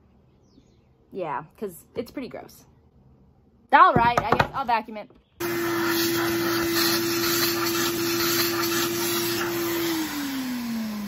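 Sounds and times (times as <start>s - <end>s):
vacuum cleaner running: 5.4s - 11.0s.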